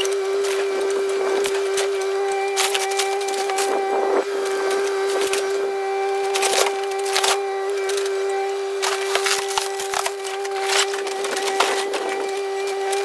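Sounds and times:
debris crunching and splintering: 0:00.0 - 0:13.0
excavator engine whining: 0:00.0 - 0:13.0.

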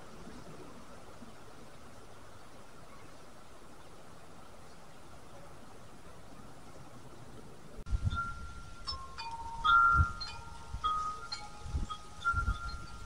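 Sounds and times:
faint hiss: 0:00.0 - 0:13.0
wind chime ringing: 0:07.9 - 0:13.0.

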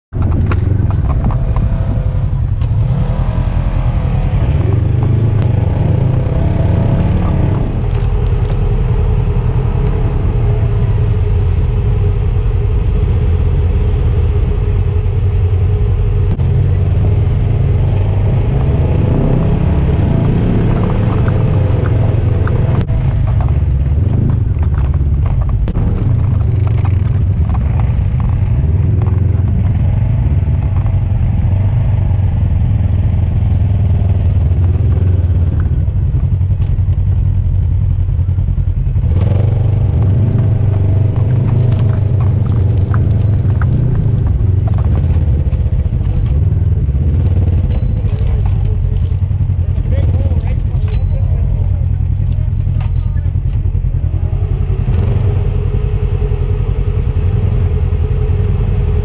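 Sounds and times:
utility vehicle engine running: 0:00.1 - 0:59.0.

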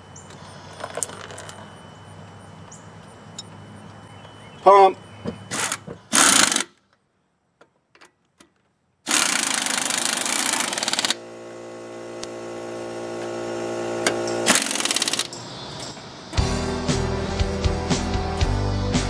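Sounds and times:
pneumatic impact wrench hammering: 0:05.4 - 0:06.8, 0:09.1 - 0:16.1.

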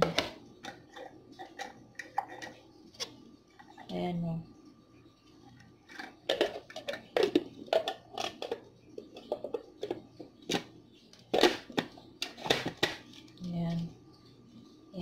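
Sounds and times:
plastic clatter: 0:05.9 - 0:13.3.

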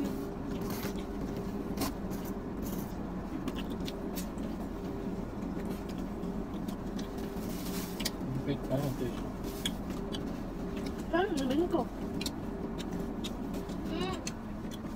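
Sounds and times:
car idling hum: 0:00.0 - 0:14.9.

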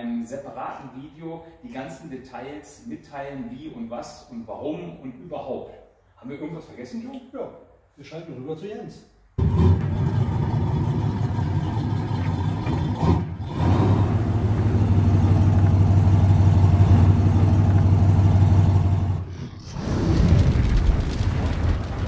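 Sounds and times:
car engine running: 0:09.4 - 0:19.4.

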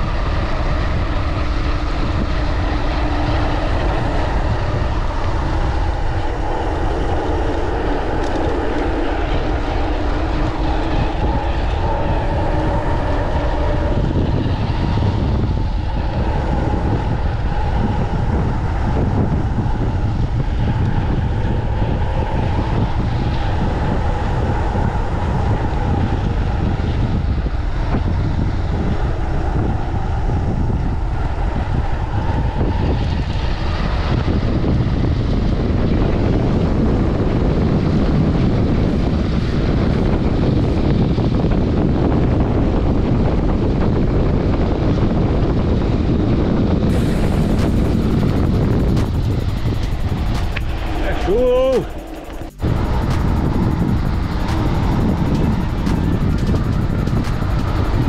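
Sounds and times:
steady hum: 0:00.0 - 0:34.8, 0:46.7 - 0:58.0
mountain bike rolling rumble: 0:00.0 - 0:58.0
wind buffeting microphone: 0:00.0 - 0:58.0.

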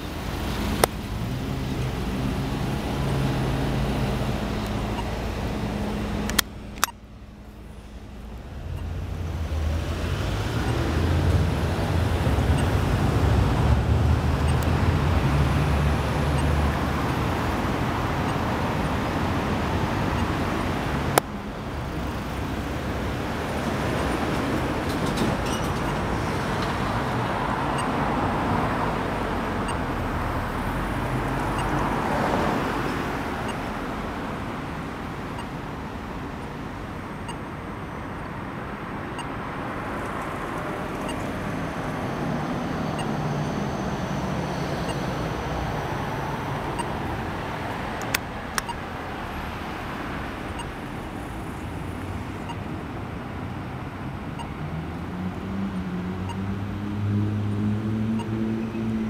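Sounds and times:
street traffic passing: 0:00.0 - 0:59.0
sharp clicks: 0:00.8 - 0:01.0, 0:06.2 - 0:07.1, 0:47.9 - 0:48.8
crossing button ticking: 0:04.5 - 0:07.6, 0:14.3 - 0:14.8, 0:47.7 - 0:48.9.

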